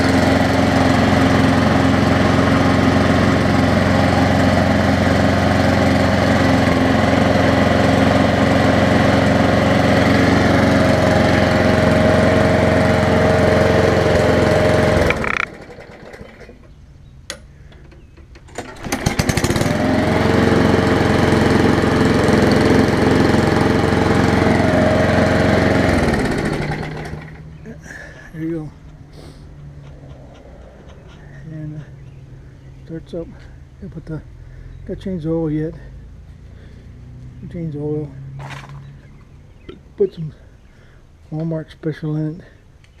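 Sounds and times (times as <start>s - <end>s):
lawn mower engine running: 0.0s - 34.8s.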